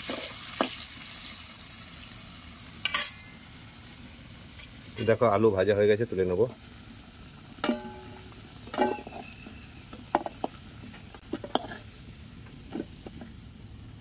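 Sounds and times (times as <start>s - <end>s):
metal spatula scraping a pan: 0.0s - 0.8s, 7.6s - 10.6s, 11.2s - 12.0s
oil sizzling: 0.0s - 14.0s
ringing metal clangs: 7.6s - 9.6s.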